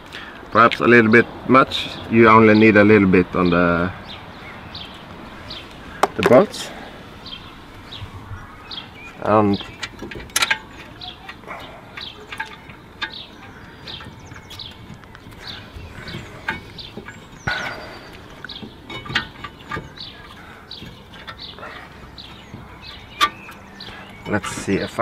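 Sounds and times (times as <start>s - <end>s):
birds chirping: 0.0s - 25.0s.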